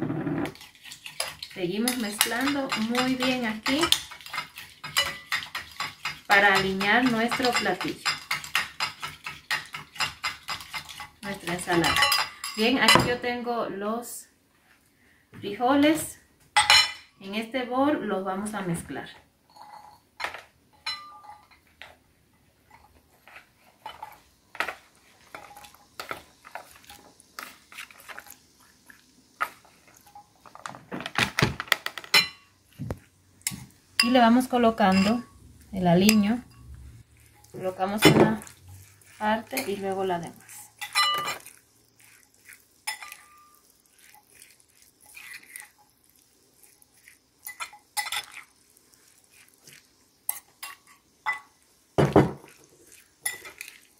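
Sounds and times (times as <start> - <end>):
spoon scraping container: 0.0 - 13.2, 22.7 - 30.8, 31.9 - 51.6, 52.2 - 53.9.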